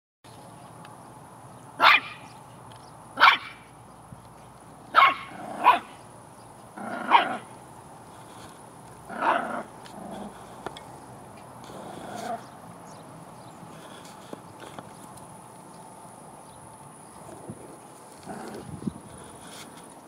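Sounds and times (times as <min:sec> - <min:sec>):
puppy barking: 0:01.8 - 0:02.3, 0:03.2 - 0:03.7, 0:04.9 - 0:06.0, 0:06.9 - 0:07.5, 0:09.1 - 0:09.7.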